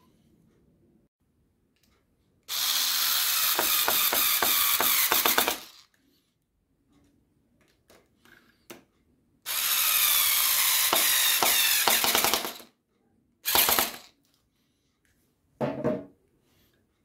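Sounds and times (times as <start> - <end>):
cordless screwdriver motor: 2.5 - 5.9, 9.5 - 12.6, 13.5 - 14.1
screwdriver clutch clicking: 2.5 - 5.9.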